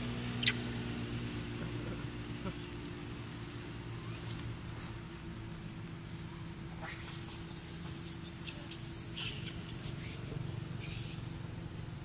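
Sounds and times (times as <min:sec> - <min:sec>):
low background hum: 0:00.0 - 0:12.0
baby monkey squeaking: 0:00.4 - 0:00.7, 0:06.8 - 0:11.3.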